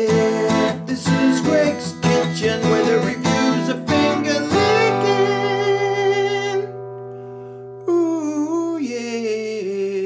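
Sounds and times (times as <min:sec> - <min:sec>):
strummed guitar chord ringing: 0:00.4 - 0:07.9.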